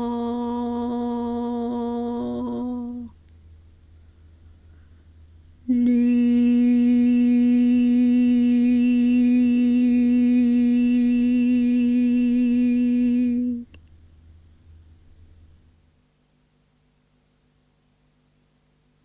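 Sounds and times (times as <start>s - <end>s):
woman chanting a held note: 0.0s - 3.2s, 5.7s - 13.7s.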